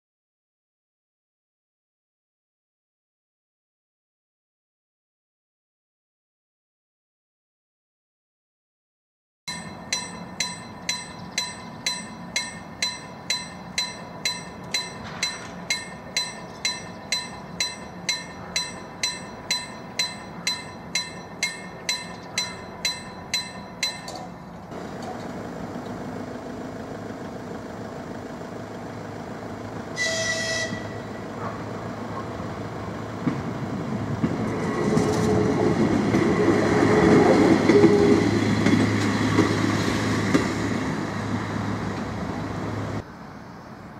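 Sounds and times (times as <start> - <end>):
level crossing warning bell: 9.5 - 25.3
diesel railcar passing: 9.5 - 43.9
train horn blast: 30.0 - 31.4, 36.4 - 38.4.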